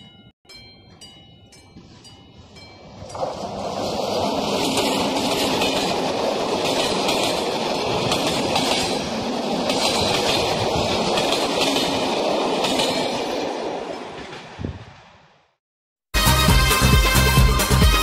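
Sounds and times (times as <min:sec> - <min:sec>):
train wheels rumbling on rails: 0:00.9 - 0:15.1.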